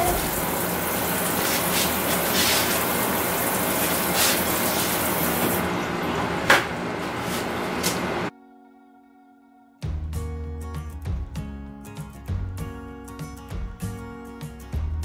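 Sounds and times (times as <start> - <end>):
broth boiling: 0.0 - 6.5.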